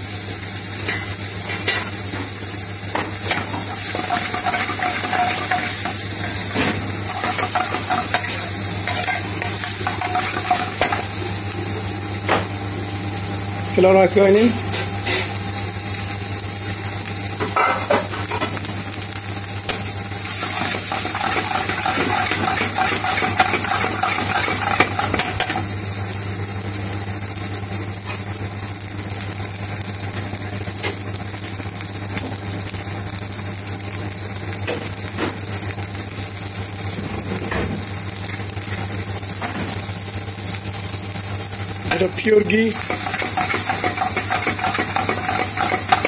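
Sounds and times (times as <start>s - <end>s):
rice sizzling in a frying pan: 0.0s - 46.0s
steady low hum: 3.2s - 13.7s
metal spoon clinking against pan: 3.8s - 6.5s, 7.1s - 11.1s, 20.4s - 25.6s, 42.8s - 46.0s.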